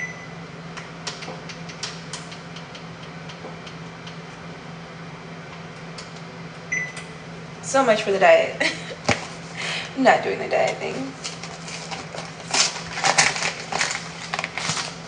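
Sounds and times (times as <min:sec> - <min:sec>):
low appliance hum: 0:00.0 - 0:15.0.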